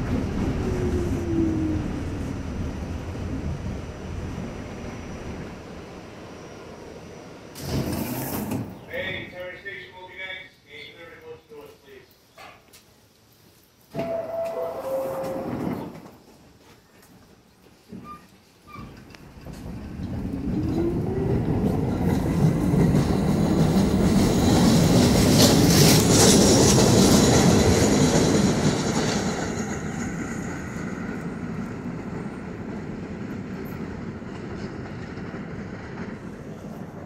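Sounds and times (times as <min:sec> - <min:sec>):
train wheels on rails: 0:00.0 - 0:09.0, 0:13.6 - 0:37.0
train motor whine: 0:13.9 - 0:15.8.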